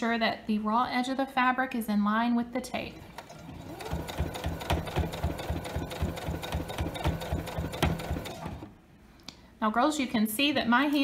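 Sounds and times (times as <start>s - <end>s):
electric sewing machine stitching: 3.0s - 8.7s.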